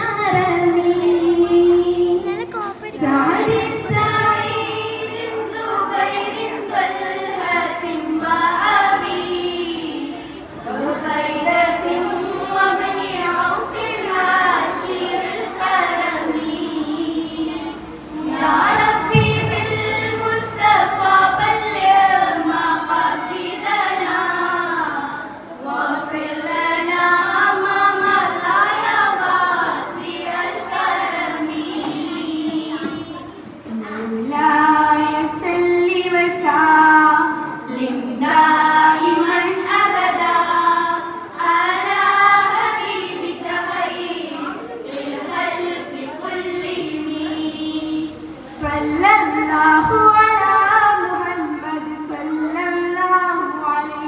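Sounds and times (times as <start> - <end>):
girls singing together: 0.0 - 54.0.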